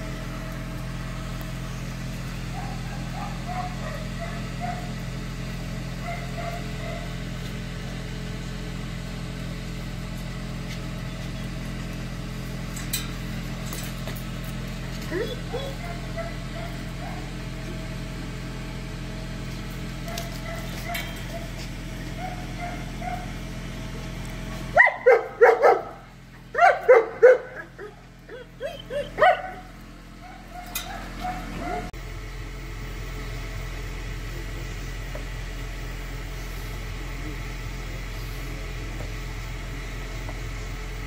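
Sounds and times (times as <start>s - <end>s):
dog barking: 2.5s - 5.0s, 6.0s - 7.2s, 15.5s - 17.3s, 20.1s - 21.5s, 22.2s - 23.4s, 24.7s - 28.0s, 28.6s - 31.9s.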